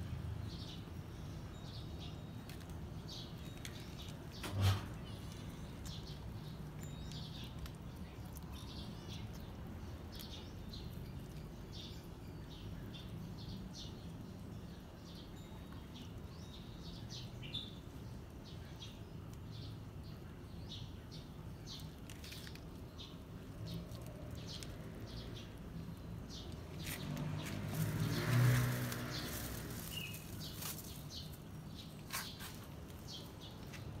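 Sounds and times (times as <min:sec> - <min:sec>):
small birds chirping: 0:00.0 - 0:34.0
motor vehicle passing: 0:23.4 - 0:32.4.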